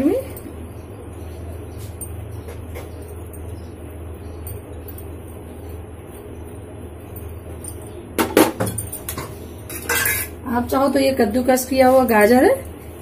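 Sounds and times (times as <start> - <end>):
steady low hum: 0.0 - 13.0
metal kitchenware clattering: 7.2 - 10.5.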